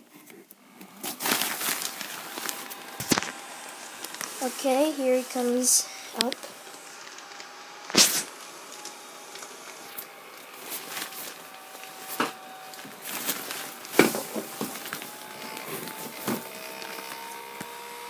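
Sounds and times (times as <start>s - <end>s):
blower fan whining: 0.0s - 18.0s
nylon fabric rustling: 1.0s - 6.4s, 10.4s - 17.5s.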